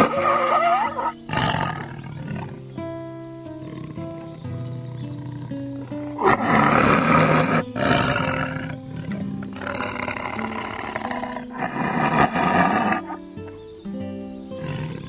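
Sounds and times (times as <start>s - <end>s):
tiger roaring and growling: 0.0s - 2.6s, 5.2s - 13.2s
background music: 0.0s - 15.0s.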